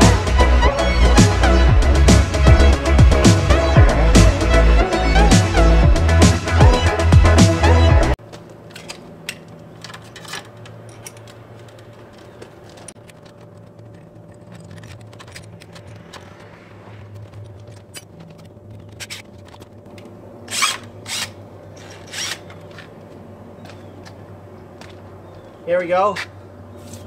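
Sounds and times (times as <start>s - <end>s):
hand tools clicking and scraping: 8.2s - 25.4s.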